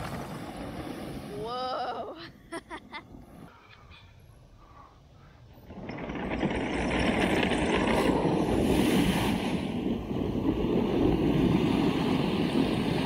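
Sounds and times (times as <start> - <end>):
tank tracks churning water: 5.6 - 13.0.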